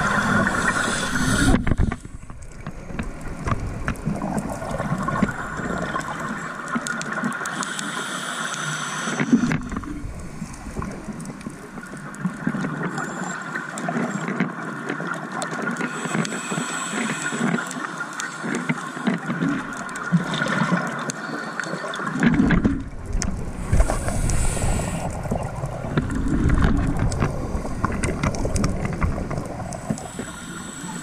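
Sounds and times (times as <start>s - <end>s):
hiss: 0.0s - 2.1s, 7.4s - 9.6s, 15.9s - 18.6s, 23.6s - 25.2s, 29.8s - 31.0s
scuba regulator breathing: 0.0s - 2.2s, 7.4s - 10.6s, 15.8s - 19.0s, 23.6s - 25.5s, 29.6s - 31.0s
rumbling bubbles underwater: 0.0s - 7.5s, 9.3s - 13.0s, 22.0s - 31.0s
sharp clicks underwater: 0.0s - 31.0s.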